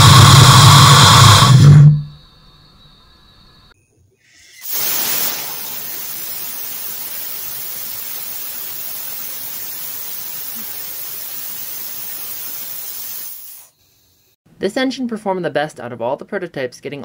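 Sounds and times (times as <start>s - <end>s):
compressed air hissing from nozzle: 4.3s - 14.4s.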